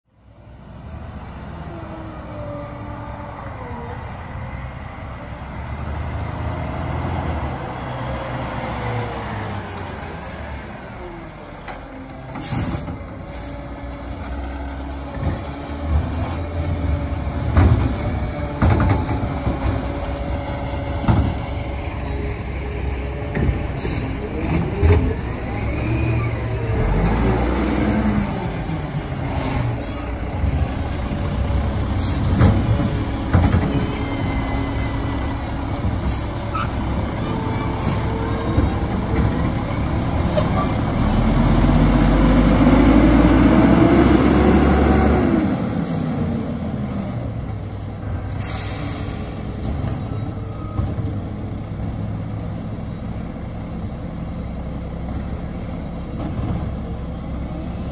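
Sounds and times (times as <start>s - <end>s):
diesel truck engines revving: 0.2s - 57.9s
air brakes squealing and hissing: 8.3s - 13.8s, 23.4s - 39.2s, 43.5s - 53.1s, 55.4s - 56.1s.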